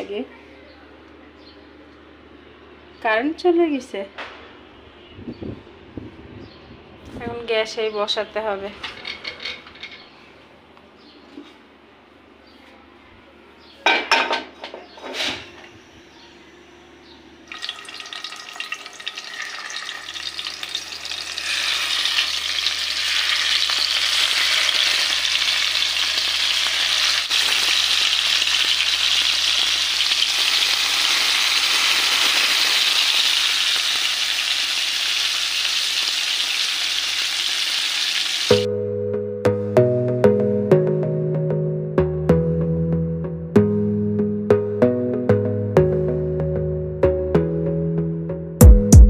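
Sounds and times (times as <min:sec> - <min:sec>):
fish frying in hot oil: 0:17.5 - 0:38.6
music: 0:38.5 - 0:49.0.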